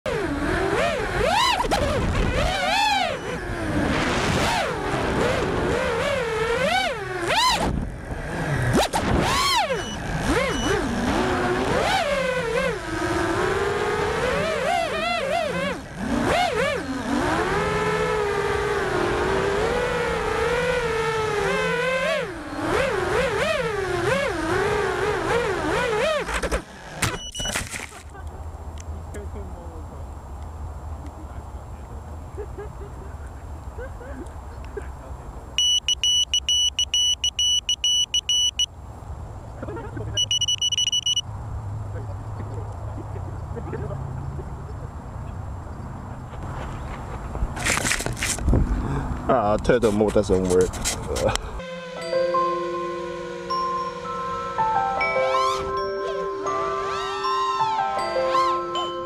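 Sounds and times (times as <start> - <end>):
quadcopter motors whining: 0.1 - 27.5.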